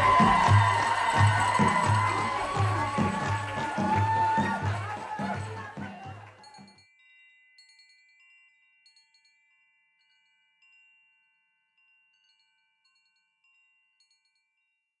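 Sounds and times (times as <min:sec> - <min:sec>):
faint chime tones: 0:06.5 - 0:14.9.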